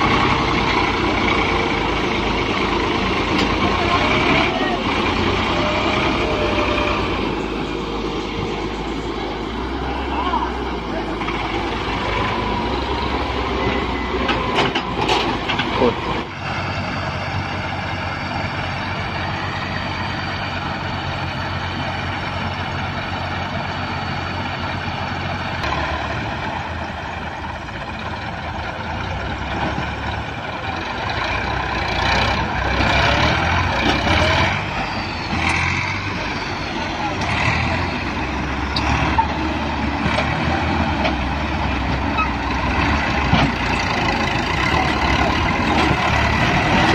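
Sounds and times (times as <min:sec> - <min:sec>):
diesel engines running: 0:00.0 - 0:46.9.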